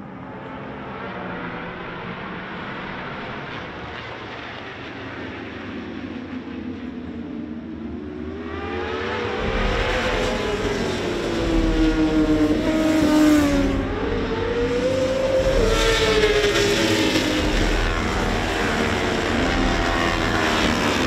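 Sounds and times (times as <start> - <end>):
motorbikes passing at high revs: 8.7 - 21.0.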